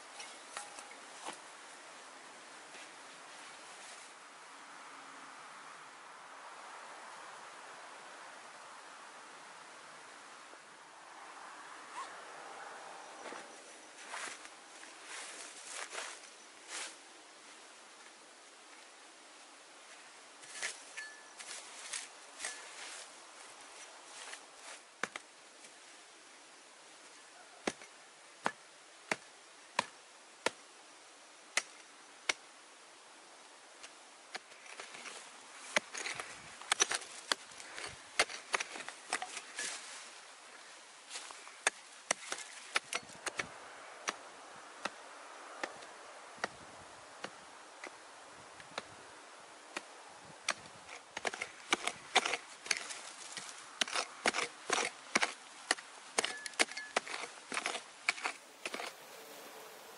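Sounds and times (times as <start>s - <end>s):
loose earth scraping: 0.0s - 1.5s, 20.4s - 25.2s, 34.3s - 44.2s, 50.5s - 59.9s
pick-mattock striking soil: 20.4s - 23.1s, 33.8s - 40.0s, 41.1s - 44.2s, 50.5s - 59.9s.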